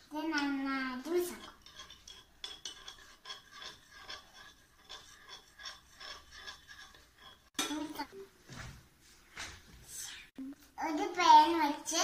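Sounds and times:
spoon stirring in glass bowl: 0.3 - 8.2.

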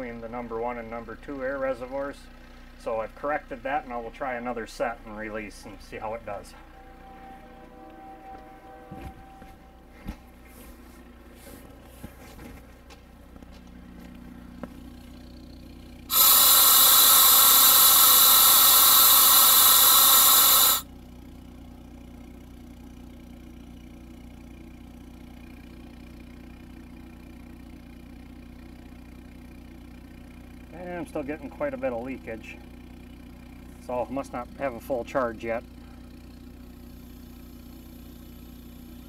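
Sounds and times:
air compressor humming: 16.0 - 20.9
air brake valve hissing: 16.1 - 20.9.

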